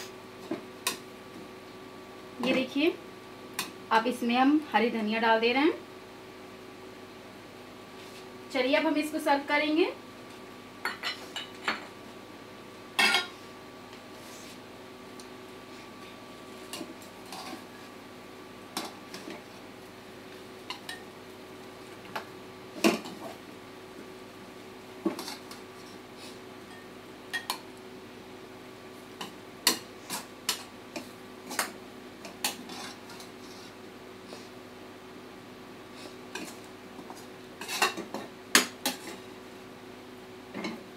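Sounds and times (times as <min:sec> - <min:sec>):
metal spoon scraping a pan: 0:32.4 - 0:33.8, 0:37.6 - 0:38.1.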